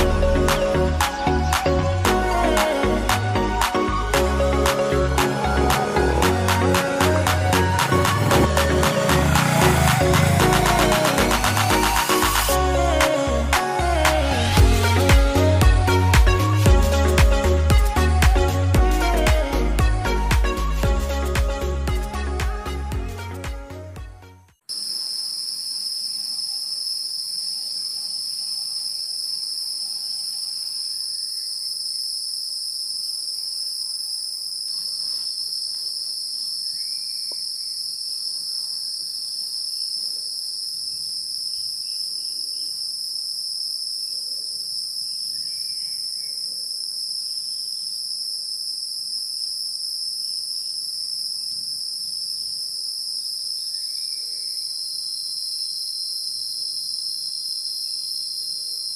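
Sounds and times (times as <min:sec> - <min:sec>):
insect chorus drone: 0:04.2 - 0:16.0, 0:24.7 - 0:58.9.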